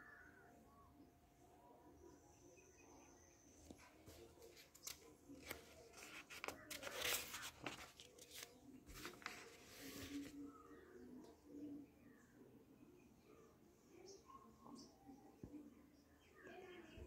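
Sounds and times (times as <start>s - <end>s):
paper rustling and crinkling: 3.6s - 10.6s.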